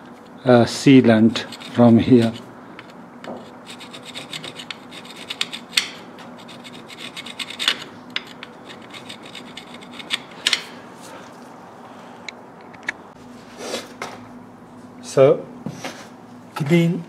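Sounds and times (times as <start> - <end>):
metal tool scraping metal: 1.3 - 10.4.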